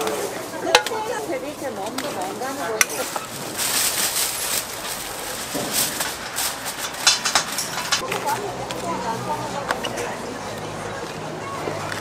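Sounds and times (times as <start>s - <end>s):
aluminium foil crinkling: 0.0s - 8.4s
plastic bag rustling: 0.0s - 9.0s.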